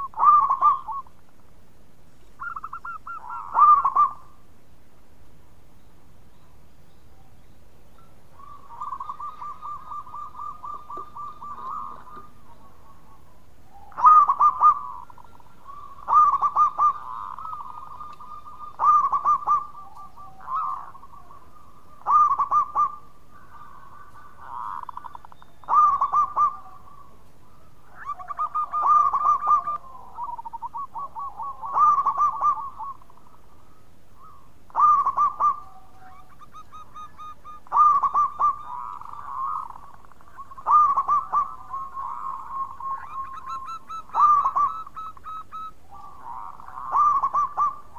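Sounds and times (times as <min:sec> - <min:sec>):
faint dove cooing: 0:00.0 - 0:01.2, 0:02.4 - 0:04.4, 0:08.3 - 0:47.9
dove stuttering coo: 0:08.4 - 0:13.0, 0:13.8 - 0:33.4, 0:34.2 - 0:47.9.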